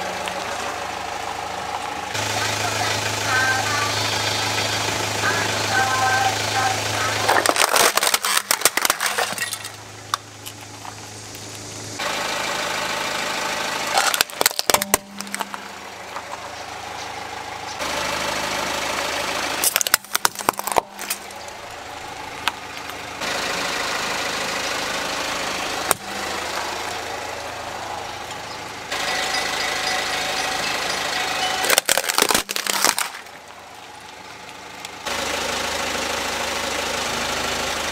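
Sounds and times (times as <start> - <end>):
car engine idling: 0.0 - 37.9
plastic toys cracking under tyre: 7.2 - 11.5, 13.9 - 15.6, 19.6 - 21.6, 31.6 - 34.9.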